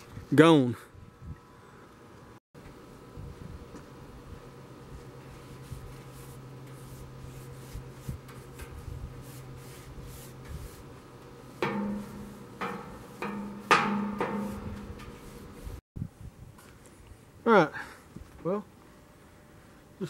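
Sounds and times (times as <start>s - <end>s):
knocks on hollow steel tank: 11.6s - 15.2s.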